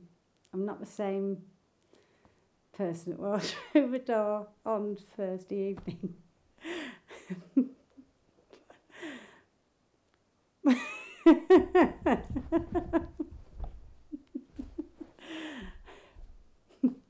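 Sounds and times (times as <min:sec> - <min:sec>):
woman breathing in: 0:06.6 - 0:07.1, 0:08.9 - 0:09.5, 0:15.2 - 0:16.3
woman laughing: 0:07.1 - 0:08.7, 0:10.7 - 0:16.1, 0:16.7 - 0:17.0.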